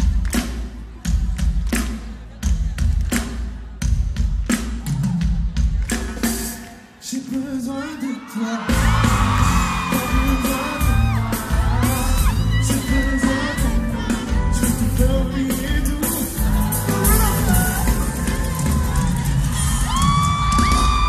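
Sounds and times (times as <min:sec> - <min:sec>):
live pop band playing: 0:00.0 - 0:21.0
person singing: 0:06.3 - 0:20.2.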